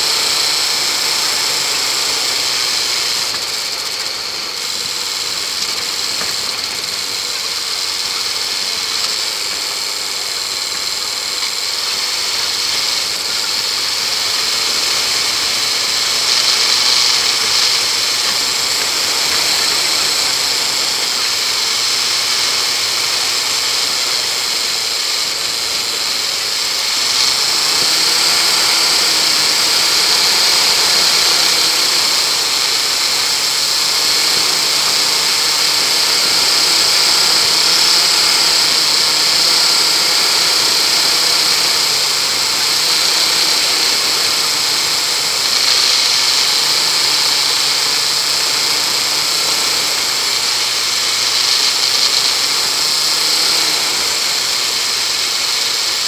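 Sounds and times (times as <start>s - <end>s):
steady high hiss: 0.0s - 56.0s
vehicle engine running: 0.0s - 56.0s.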